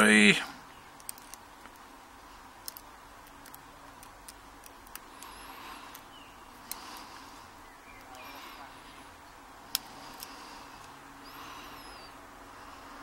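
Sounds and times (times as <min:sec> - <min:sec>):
tweezers and pins clicking on lock: 0:01.0 - 0:01.8, 0:02.6 - 0:05.3.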